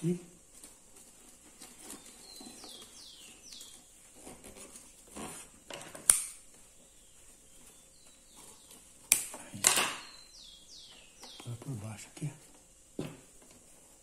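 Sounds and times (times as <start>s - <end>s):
paper strands rustling and scraping: 0.4s - 5.7s.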